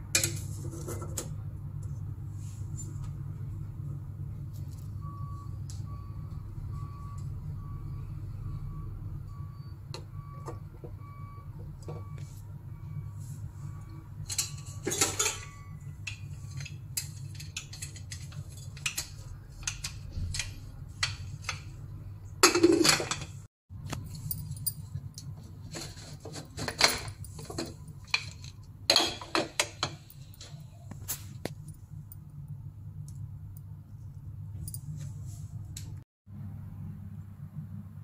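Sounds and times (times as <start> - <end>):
metal cookware clinking: 14.3 - 21.7, 24.2 - 30.6.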